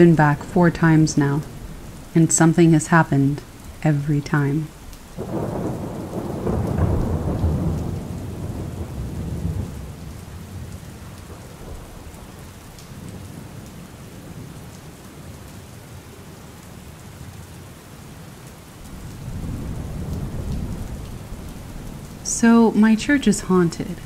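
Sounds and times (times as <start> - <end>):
low thunder rolling: 0.0 - 13.6, 18.8 - 24.0
rain falling: 0.0 - 24.0.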